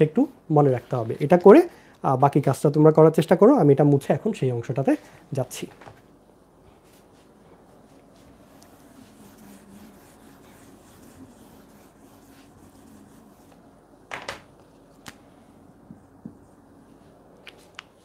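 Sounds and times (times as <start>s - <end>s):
eraser wiping a whiteboard: 6.7s - 14.0s, 15.7s - 17.2s.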